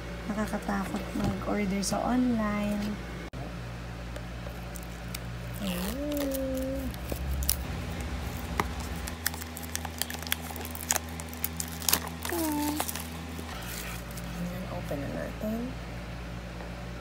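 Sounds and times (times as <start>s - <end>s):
steady low hum: 0.0s - 17.0s
shrink-wrap crinkling and tearing: 4.5s - 14.6s
person humming: 5.6s - 7.2s, 12.2s - 13.0s.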